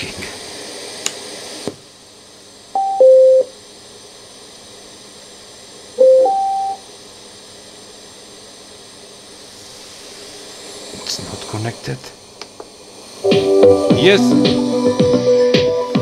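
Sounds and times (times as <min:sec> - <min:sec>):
falling two-note beep: 0:02.8 - 0:03.5, 0:06.0 - 0:06.8
rising two-note beep: 0:02.8 - 0:03.5, 0:06.0 - 0:06.8
music from speakers: 0:13.3 - 0:16.0.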